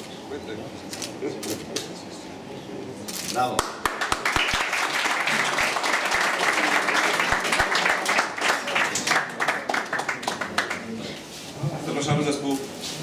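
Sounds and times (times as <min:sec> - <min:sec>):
crowd applauding: 0:03.6 - 0:11.0.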